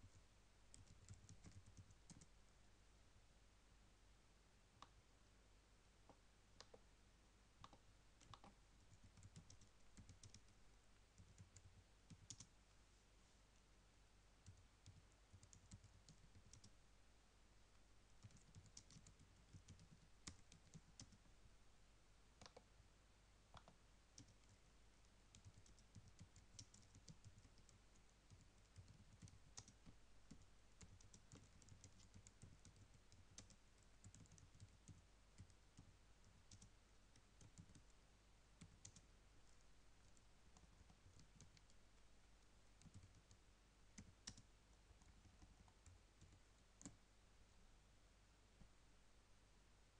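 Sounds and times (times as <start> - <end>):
faint keyboard typing: 0.0 - 2.4, 6.0 - 6.9, 7.6 - 12.6, 14.4 - 16.8, 18.1 - 21.3, 22.4 - 22.7, 23.5 - 38.0, 38.6 - 47.1.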